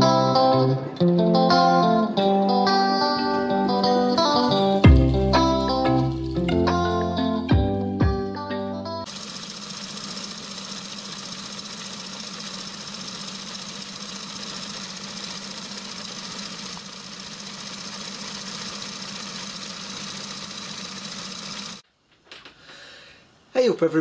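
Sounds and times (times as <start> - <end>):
lathe motor whirring: 9.1 - 21.8.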